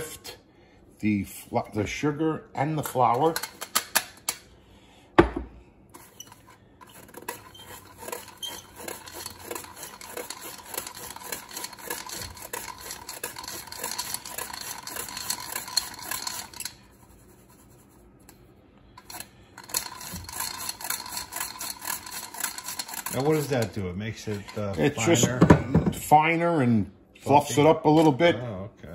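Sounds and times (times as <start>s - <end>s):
flour sifter scraping: 6.0s - 18.0s, 19.0s - 25.1s.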